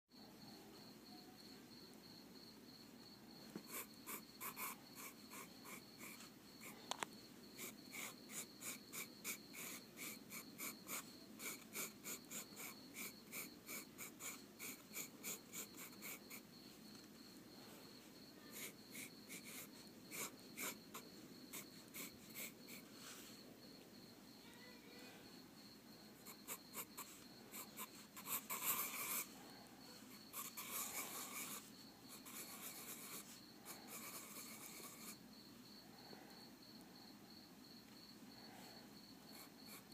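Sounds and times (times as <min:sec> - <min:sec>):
pencil scratching on paper: 0:03.6 - 0:06.9, 0:07.6 - 0:17.0, 0:18.4 - 0:23.4, 0:26.2 - 0:35.2, 0:39.3 - 0:39.9.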